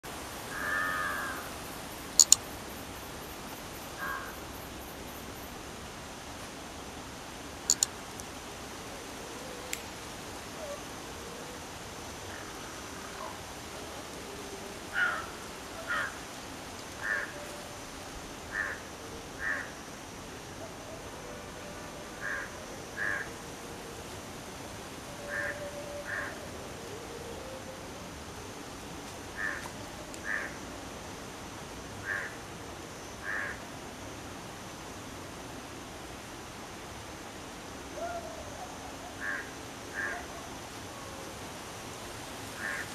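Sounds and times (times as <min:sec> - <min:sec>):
crow cawing: 0:00.5 - 0:01.4, 0:04.0 - 0:04.3, 0:15.0 - 0:15.3, 0:15.9 - 0:16.2, 0:17.0 - 0:17.3, 0:18.5 - 0:18.8, 0:19.4 - 0:19.7, 0:22.2 - 0:23.3, 0:25.3 - 0:26.3, 0:29.4 - 0:29.6, 0:30.2 - 0:30.5, 0:32.0 - 0:32.4, 0:33.2 - 0:33.6, 0:39.2 - 0:40.2, 0:42.6 - 0:42.9
sharp clicks: 0:02.2 - 0:02.4, 0:07.7 - 0:08.3.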